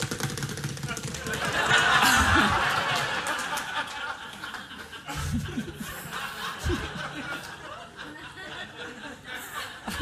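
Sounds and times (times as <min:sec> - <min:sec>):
audience applauding: 0:00.0 - 0:05.0
audience laughing: 0:00.9 - 0:10.0.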